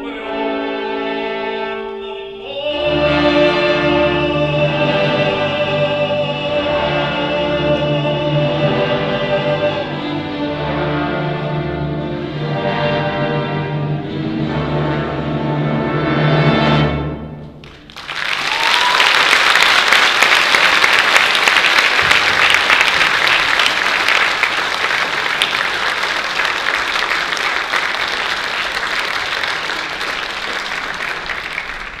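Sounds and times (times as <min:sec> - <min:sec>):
audience applause: 0:17.6 - 0:32.0.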